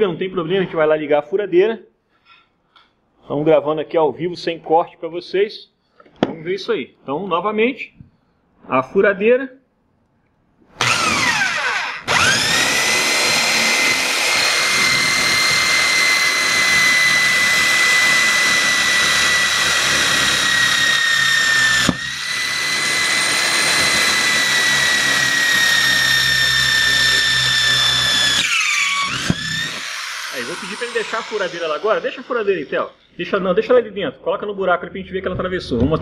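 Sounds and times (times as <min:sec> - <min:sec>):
electric drill whining: 0:10.8 - 0:33.2.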